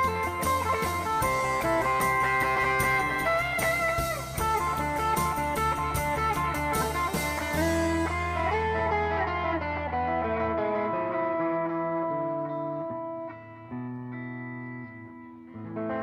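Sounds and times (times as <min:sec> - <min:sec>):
sharp percussion hits: 0:00.0 - 0:08.8
bass line: 0:00.0 - 0:12.4
electric guitar melody: 0:00.0 - 0:16.0.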